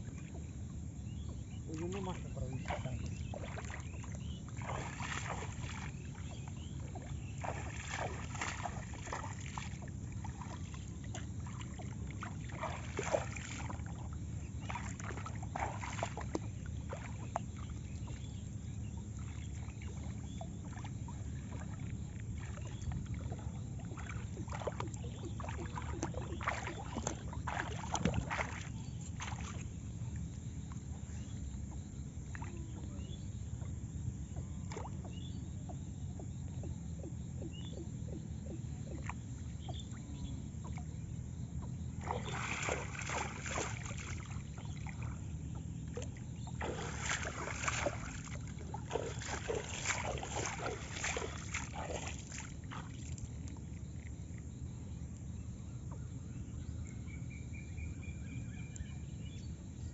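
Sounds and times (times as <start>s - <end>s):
water splashing and dripping: 1.3s - 18.3s, 19.2s - 29.8s, 34.7s - 35.0s, 41.9s - 54.1s.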